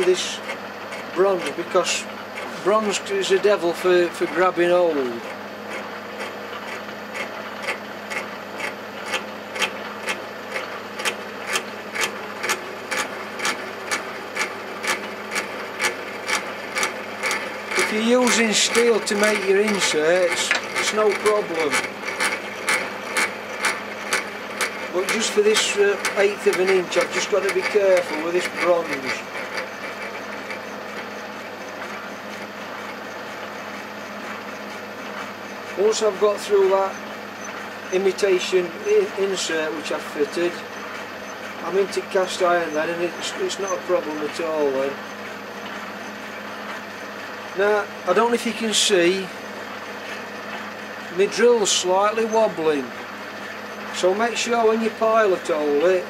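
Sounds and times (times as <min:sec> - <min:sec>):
drill boring metal: 0:00.0 - 0:56.0
lathe hum: 0:00.0 - 0:56.0
even ticking: 0:05.2 - 0:32.4.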